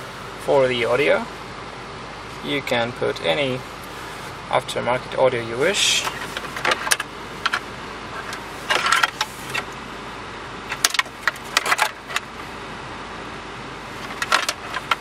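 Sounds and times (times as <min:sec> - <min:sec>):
steady low hum: 0:00.0 - 0:15.0
plastic plugs and wires rattling: 0:06.1 - 0:07.6, 0:08.2 - 0:09.7, 0:10.7 - 0:12.3, 0:14.0 - 0:15.0.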